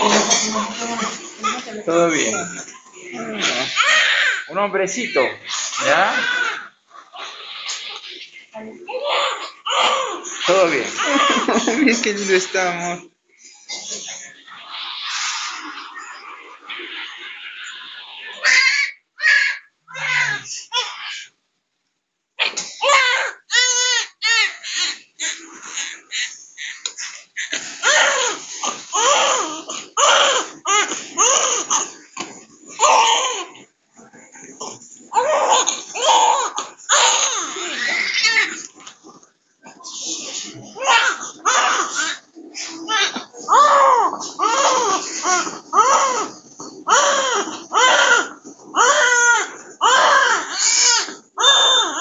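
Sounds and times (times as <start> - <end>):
newborn baby crying: 3.2 - 8.2, 8.9 - 12.6, 18.4 - 21.4, 22.4 - 32.1, 32.8 - 33.6, 35.1 - 38.7, 40.7 - 52.0.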